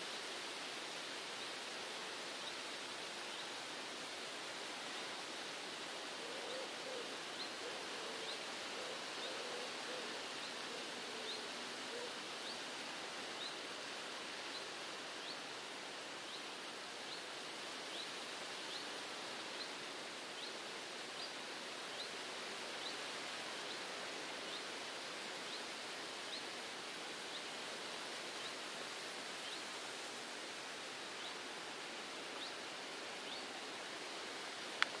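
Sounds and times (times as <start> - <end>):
steady outdoor hiss: 0.0 - 35.0.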